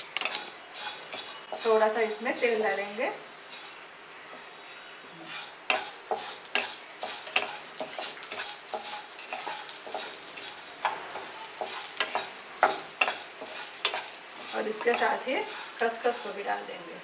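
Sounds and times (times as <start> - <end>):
light sizzle: 0.0 - 17.0
wooden spatula scraping pan: 0.2 - 3.8, 4.4 - 16.9.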